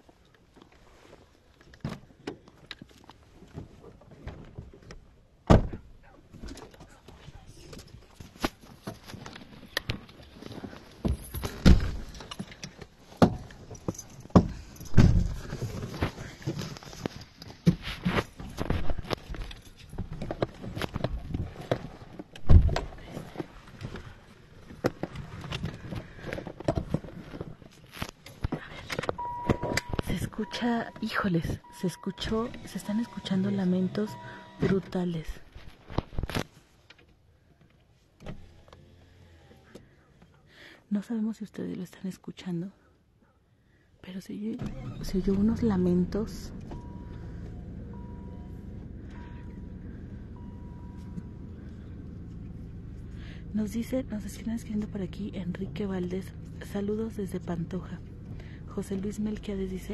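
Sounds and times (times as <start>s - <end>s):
handling knocks and rustles: 0.0s - 30.1s
heavy thump: 14.4s - 15.4s.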